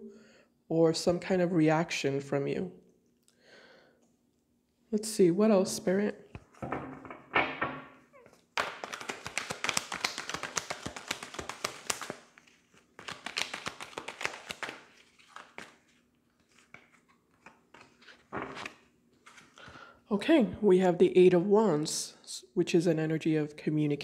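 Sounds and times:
cards being shuffled: 8.2 - 19.6.

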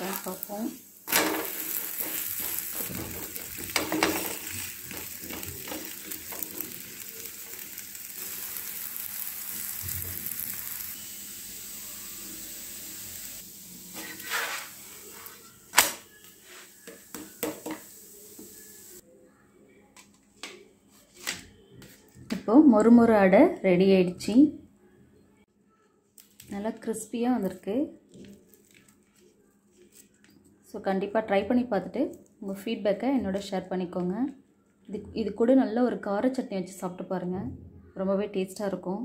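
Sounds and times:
batter sizzling in oil: 0.0 - 19.0.

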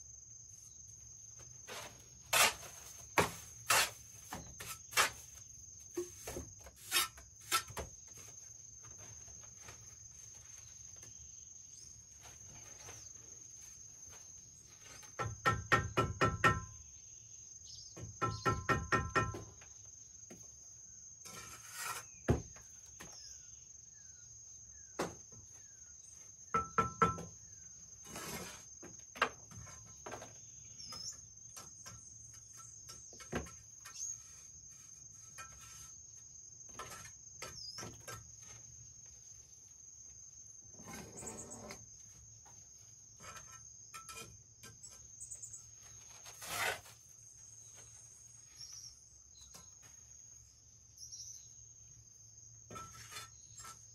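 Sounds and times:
insects droning: 0.0 - 53.9
trowel scraping mortar on brick: 1.7 - 8.4, 21.2 - 22.3, 28.0 - 28.7, 33.8 - 36.0, 46.0 - 47.1, 52.7 - 53.9.

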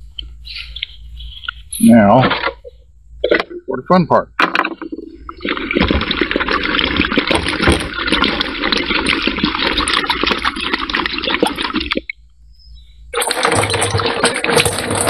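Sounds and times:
water sloshing in battery: 4.5 - 12.2, 13.2 - 15.0.

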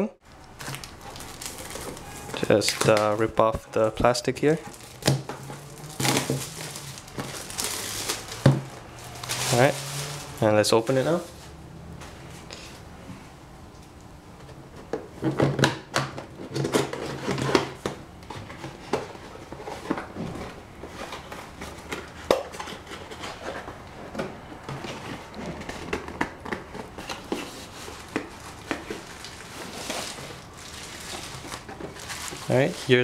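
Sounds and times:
cardboard box scraping and rubbing: 9.0 - 10.4, 28.9 - 33.0.

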